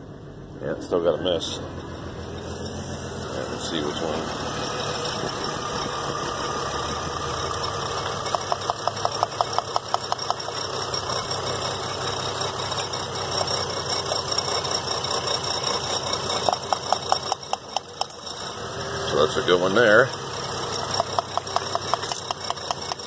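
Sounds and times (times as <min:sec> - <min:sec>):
car engine idling with misfire: 0:00.0 - 0:23.0
sharp evenly spaced ticks: 0:03.6 - 0:18.6, 0:20.6 - 0:23.0.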